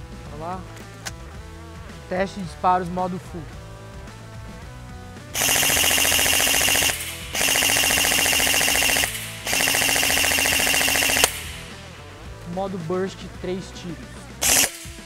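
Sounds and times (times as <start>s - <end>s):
airsoft rifle rapid firing: 5.4s - 12.3s, 14.4s - 15.0s.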